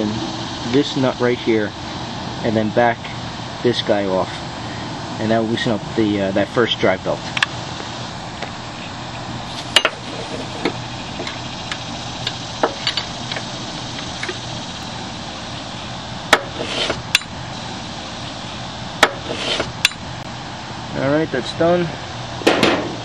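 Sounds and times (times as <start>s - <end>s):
wrench scraping: 9.5s - 14.5s, 16.3s - 17.3s, 19.0s - 20.0s
wrench clinking on metal nut: 12.2s - 13.1s.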